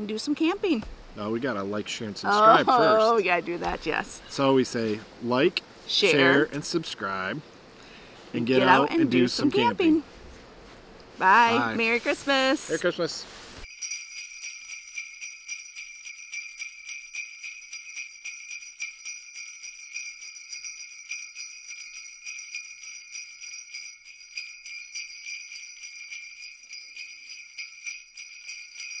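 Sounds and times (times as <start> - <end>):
sleigh bells jingling: 2.3 - 4.9, 5.9 - 6.8, 8.4 - 10.0, 13.6 - 29.0.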